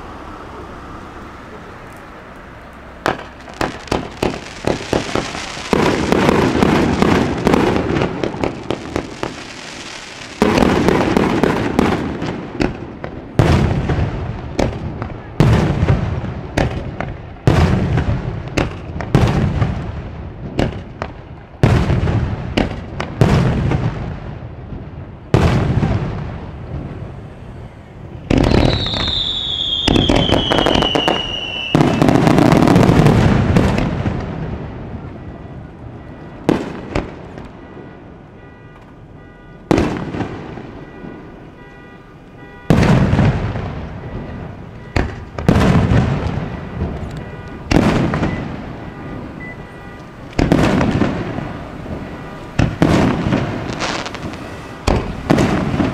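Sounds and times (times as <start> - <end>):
firework crackling: 0.0 - 24.5, 25.3 - 35.2, 42.4 - 55.9
firework shells bursting: 3.0 - 11.9, 28.3 - 33.0
whistling firework falling in pitch: 28.2 - 34.3.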